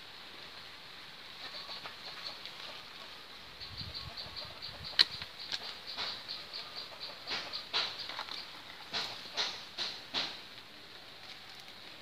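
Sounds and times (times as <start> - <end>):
rustling leaves and branches: 0.0 - 12.0
pruning shears snip: 4.9 - 6.4, 7.3 - 10.7.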